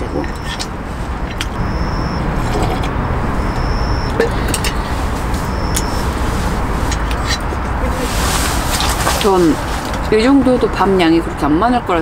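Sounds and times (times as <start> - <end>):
low rumble and hiss: 0.0 - 12.0
thin high tone: 1.3 - 8.0.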